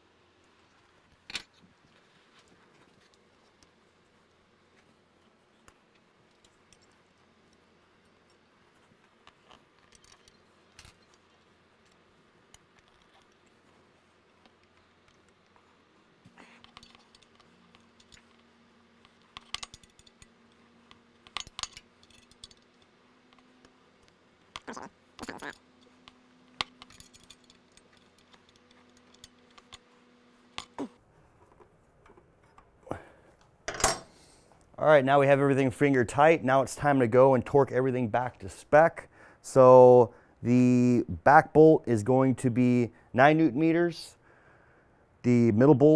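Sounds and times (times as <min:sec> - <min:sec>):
faint steady hum: 0:00.0 - 0:45.9
clicks of metal bolts threaded: 0:19.0 - 0:22.9.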